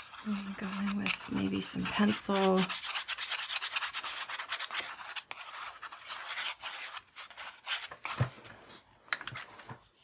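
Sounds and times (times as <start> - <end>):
pencil scribbling on paper: 0.0 - 7.9.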